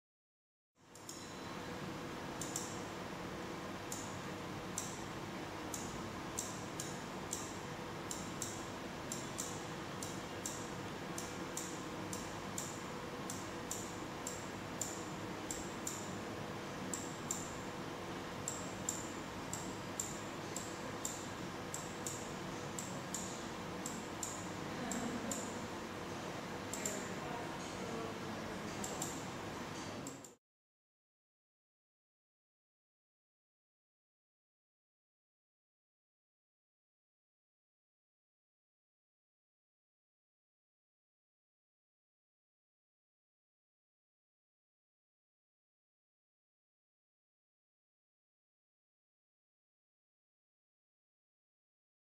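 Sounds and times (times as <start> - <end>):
steady low hum: 0.8 - 30.4.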